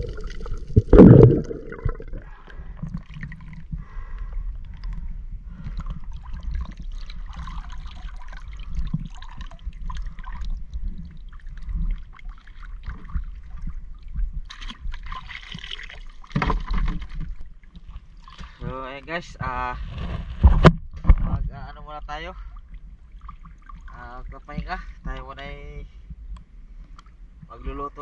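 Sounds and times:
low steady rumble: 0:00.0 - 0:15.0
water sloshing against a boat: 0:00.0 - 0:28.0.

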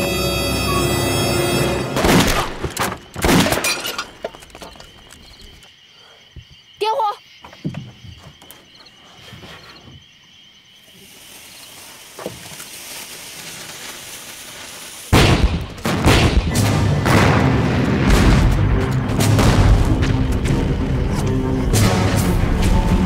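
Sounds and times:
film music: 0:00.0 - 0:02.8, 0:15.8 - 0:23.0
booms: 0:02.0 - 0:03.7, 0:15.1 - 0:22.7
loud explosion: 0:15.1 - 0:20.8.

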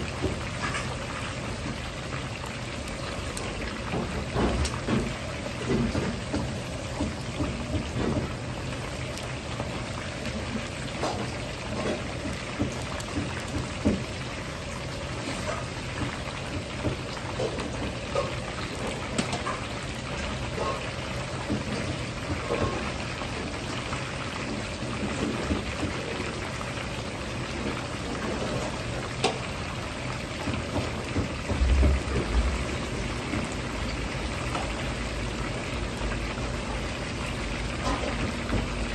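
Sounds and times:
chicken deep-frying in oil: 0:00.0 - 0:38.9.

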